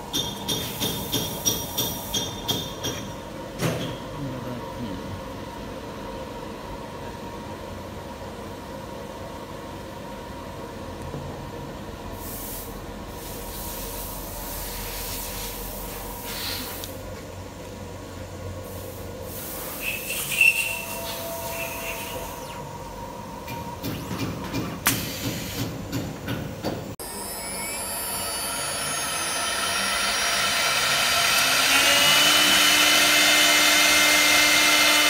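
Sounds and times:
lathe motor whine: 0:27.0 - 0:35.0
cutter carving wood: 0:27.1 - 0:35.0.

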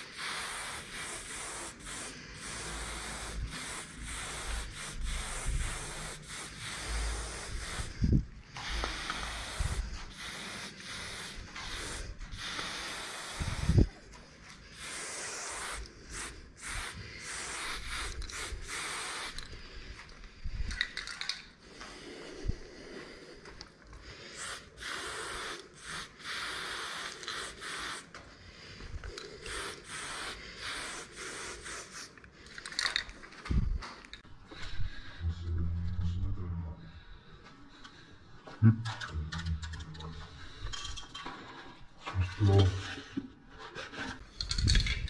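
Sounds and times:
spray paint can hissing: 0:00.0 - 0:14.0, 0:14.7 - 0:19.6, 0:24.3 - 0:28.2, 0:29.1 - 0:33.0.

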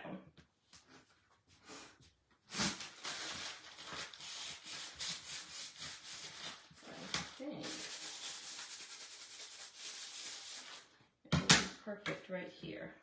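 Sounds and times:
scratchy rubbing noise: 0:02.5 - 0:10.9.

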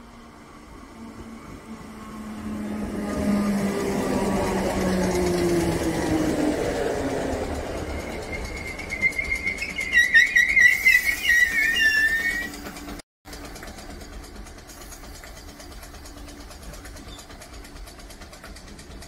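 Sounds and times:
train wheels squealing: 0:00.4 - 0:13.0, 0:14.7 - 0:17.6.

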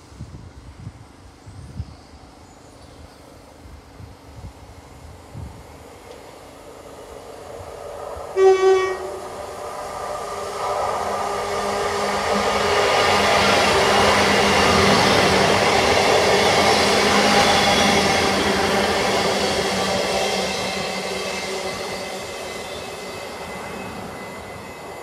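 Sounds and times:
train engines and wheels: 0:00.0 - 0:25.0
train horn blast: 0:08.4 - 0:09.3.

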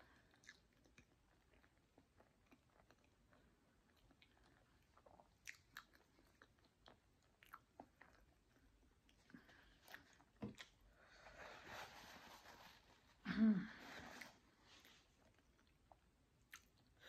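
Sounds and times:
chewing food: 0:00.0 - 0:11.0, 0:15.2 - 0:17.0.

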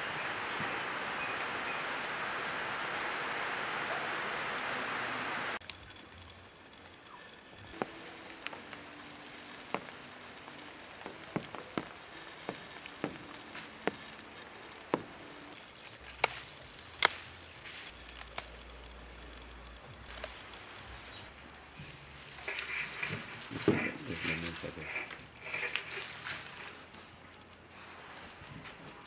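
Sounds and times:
fast-pulsing insect call: 0:05.6 - 0:27.2
high insect trill: 0:05.6 - 0:29.0
lemongrass stalks snapping: 0:07.7 - 0:19.4, 0:20.0 - 0:20.7.

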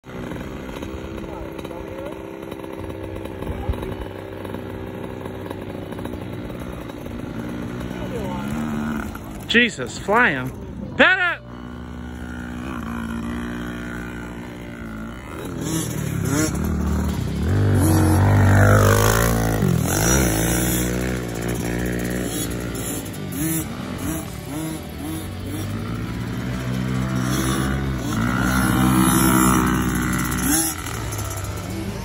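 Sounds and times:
dirt bike engine revving: 0:00.0 - 0:32.0.

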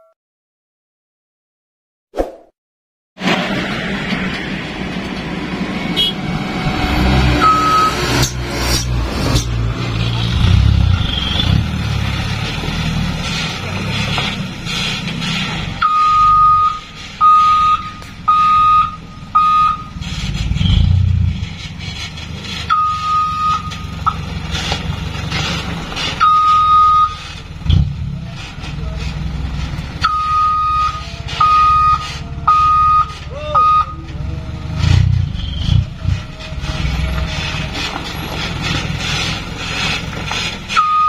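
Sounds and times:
truck engine running: 0:03.2 - 0:41.0
reverse alarm beeps: 0:07.4 - 0:08.0, 0:15.8 - 0:19.9, 0:22.7 - 0:24.2, 0:26.2 - 0:27.2, 0:30.0 - 0:34.0, 0:40.8 - 0:41.0.

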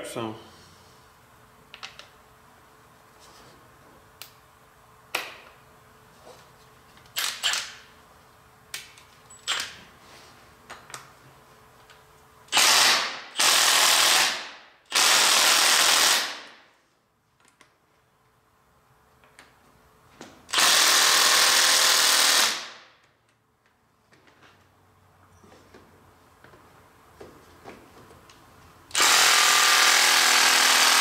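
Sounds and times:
impact wrench hammering: 0:28.9 - 0:31.0.

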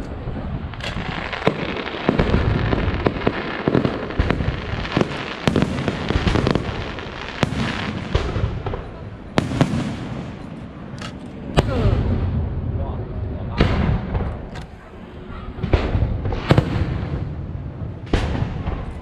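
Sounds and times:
firework crackling rumble: 0:00.0 - 0:19.0
firework bangs: 0:00.6 - 0:11.0, 0:13.5 - 0:19.0.

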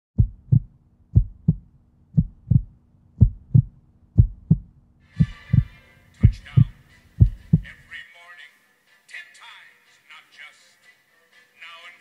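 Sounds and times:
low double thump heartbeat: 0:00.2 - 0:07.8
steady low hum: 0:00.2 - 0:07.9.

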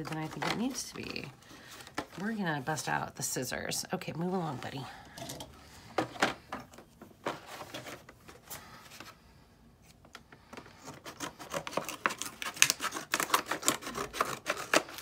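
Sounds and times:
scissors snipping plastic: 0:10.6 - 0:15.0.

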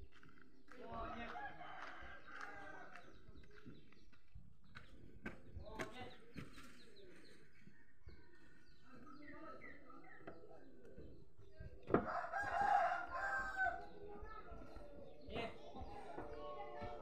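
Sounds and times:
rooster crowing: 0:12.0 - 0:13.8.

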